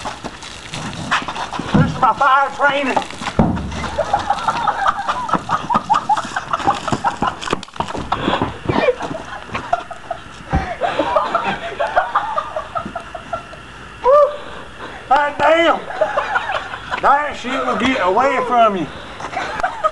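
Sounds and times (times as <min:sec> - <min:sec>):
men cackling laughter: 0:03.7 - 0:14.4, 0:15.8 - 0:18.5, 0:19.1 - 0:19.9.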